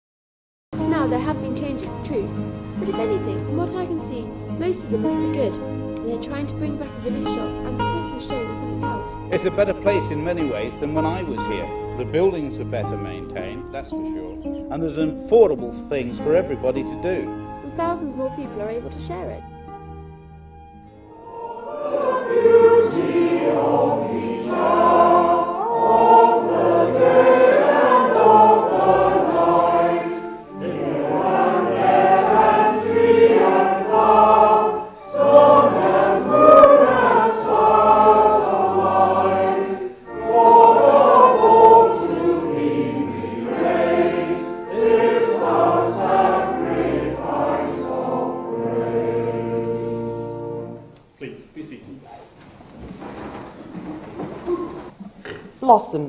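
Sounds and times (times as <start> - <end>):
choir singing: 0.8 - 14.7, 21.1 - 51.0.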